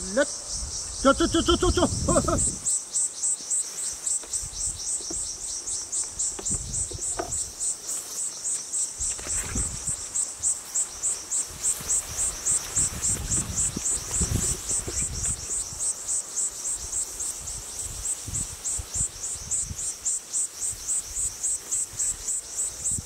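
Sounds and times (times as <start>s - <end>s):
insects chirping: 0.0s - 23.0s
footsteps through tall grass: 5.2s - 15.6s.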